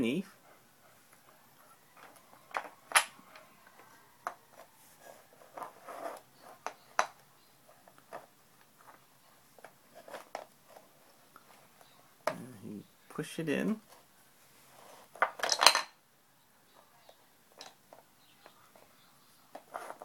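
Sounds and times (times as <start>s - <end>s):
wooden toy pieces clacking: 2.0s - 3.4s, 15.2s - 16.0s, 17.5s - 18.6s.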